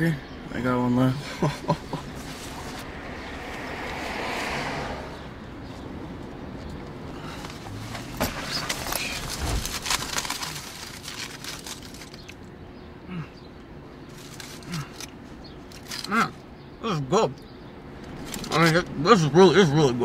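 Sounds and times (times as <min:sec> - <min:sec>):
crisp crackles: 0:07.5 - 0:12.5, 0:14.1 - 0:16.2
bag and food wrapper rustling: 0:07.6 - 0:12.4, 0:14.1 - 0:15.1.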